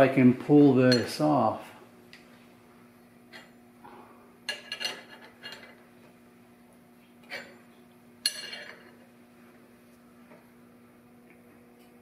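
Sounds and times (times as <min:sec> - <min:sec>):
metal parts clinking: 0:04.5 - 0:05.8, 0:08.3 - 0:08.9.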